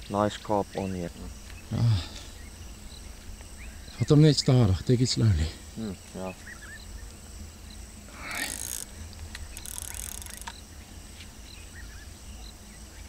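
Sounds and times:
fishing reel ratcheting: 8.3 - 10.6.

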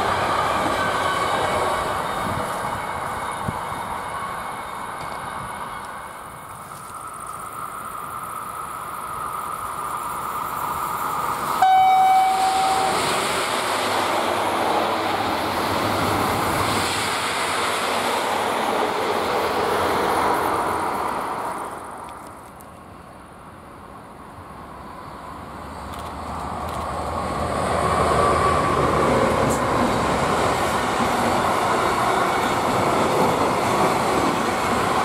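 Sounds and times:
train rushing past: 0.0 - 22.3, 24.4 - 35.0
train horn blast: 11.6 - 13.2.

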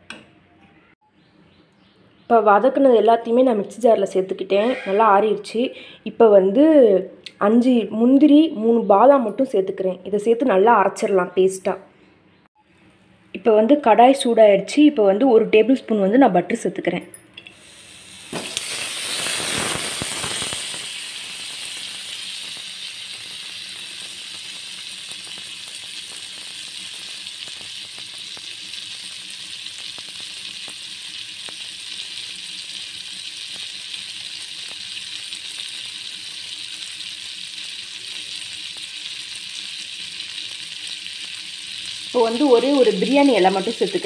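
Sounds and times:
butter sizzling in a pan: 17.6 - 44.0
faint crackles: 18.2 - 32.0.

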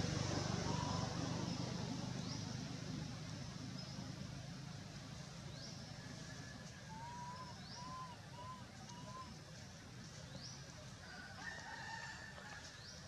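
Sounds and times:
vehicle engine rumble: 0.0 - 13.0
birds calling: 6.9 - 9.5.

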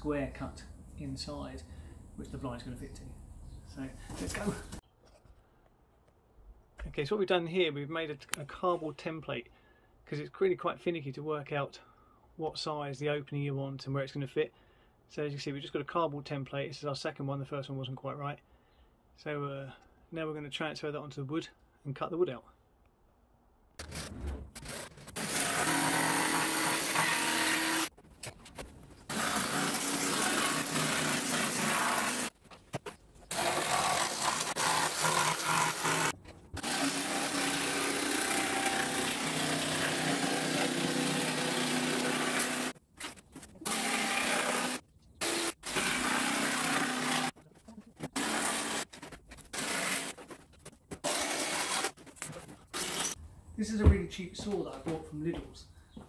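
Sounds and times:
jigsaw cutting plywood: 24.6 - 27.9, 29.1 - 32.3, 33.3 - 42.8, 43.6 - 47.4, 48.0 - 50.2, 51.0 - 52.0, 52.7 - 53.2.

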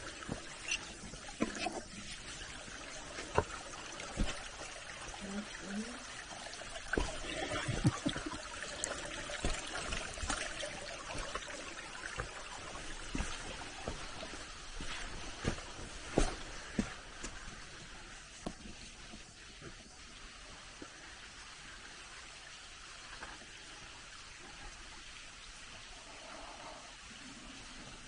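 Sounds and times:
stream trickling over rocks: 0.0 - 28.0
footsteps on sand and stones: 12.2 - 19.2.

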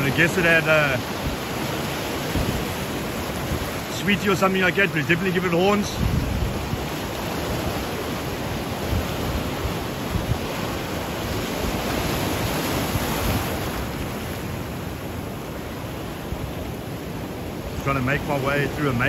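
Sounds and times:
wind buffeting microphone: 0.0 - 17.8
surf washing over rocks: 0.0 - 19.0.

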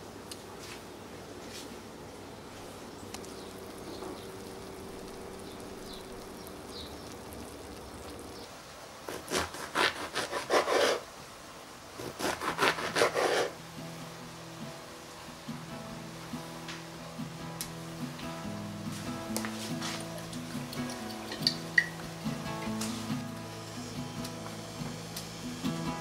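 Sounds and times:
knife sawing through onion: 9.1 - 11.0, 12.0 - 13.6.

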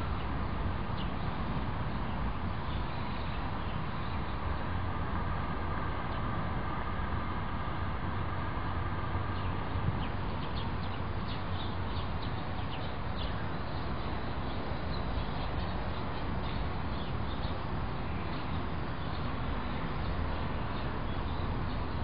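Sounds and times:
small birds chirping: 0.9 - 4.7, 9.3 - 22.0.

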